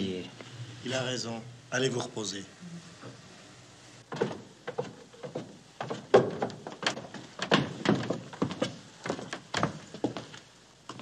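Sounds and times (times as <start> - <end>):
footsteps on wooden floor: 4.1 - 11.0.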